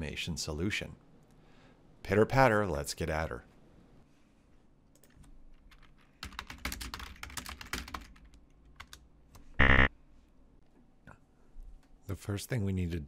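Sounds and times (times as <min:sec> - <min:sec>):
computer keyboard typing: 0:05.0 - 0:09.0.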